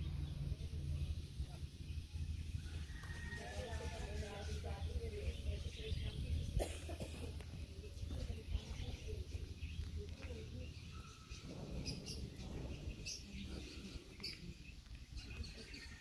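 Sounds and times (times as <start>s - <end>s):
birds chirping faintly: 0.0s - 16.0s
steady low rumble: 0.0s - 16.0s.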